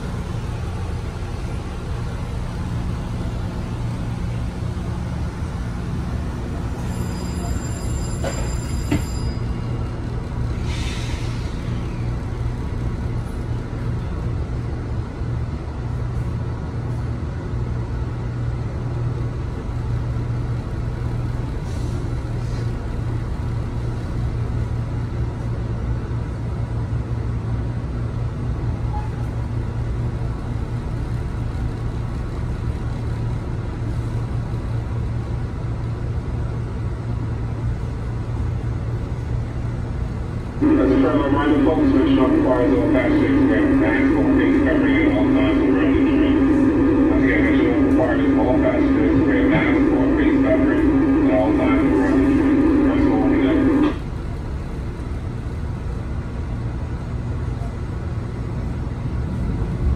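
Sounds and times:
railcar equipment hum: 0.0 - 59.9
short hiss of air: 10.6 - 11.7.

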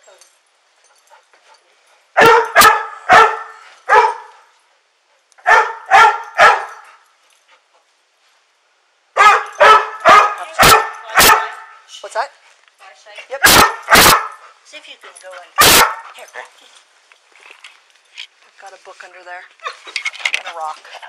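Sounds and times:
dog barking sharply: 2.2 - 4.4, 5.4 - 6.8, 9.2 - 11.8, 13.4 - 14.4, 15.6 - 16.1.

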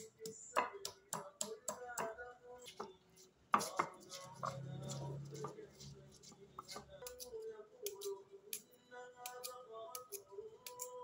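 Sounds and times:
stone pestle pounding in mortar: 0.2 - 2.9, 3.6 - 5.9.

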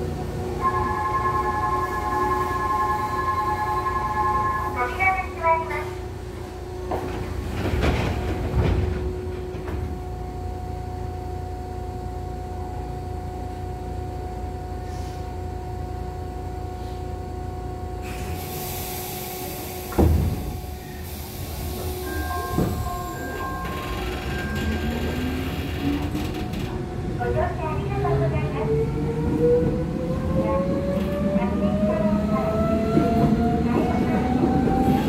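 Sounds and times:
train equipment humming: 0.0 - 35.0
sliding train doors knocking shut: 6.9 - 10.0, 19.8 - 20.7, 21.8 - 24.8.

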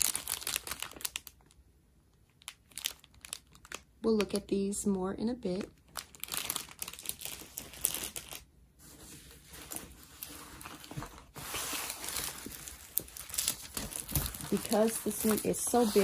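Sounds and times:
paper and plastic crinkling: 0.0 - 1.6, 2.4 - 4.4, 5.5 - 16.0.

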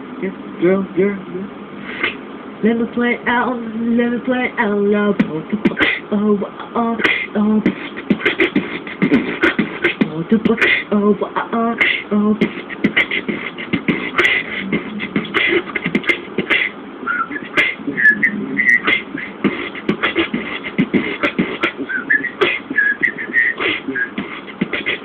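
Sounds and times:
beatboxing mouth clicks and pops: 1.9 - 2.2, 5.2 - 6.1, 7.0 - 25.0.

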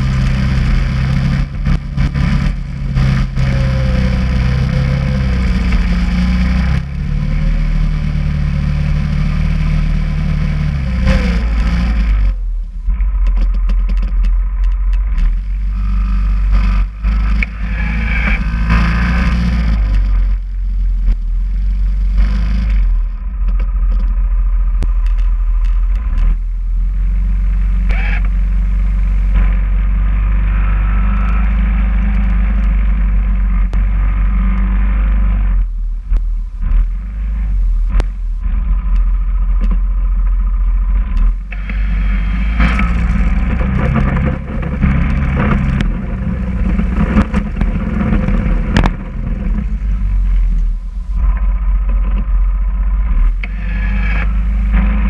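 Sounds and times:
plow blade scraping snow: 0.0 - 12.5, 15.1 - 23.1, 27.1 - 35.7, 41.0 - 55.0
atv engine running: 0.0 - 55.0.

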